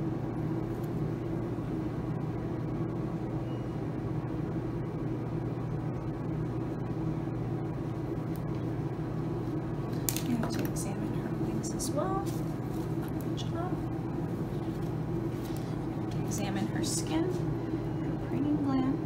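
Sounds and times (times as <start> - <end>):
low mechanical hum: 0.0 - 19.0.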